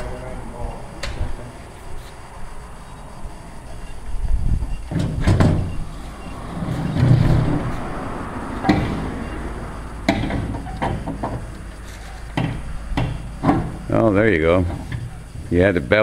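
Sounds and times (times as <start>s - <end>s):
wooden knocks: 10.1s - 11.7s, 12.3s - 13.8s.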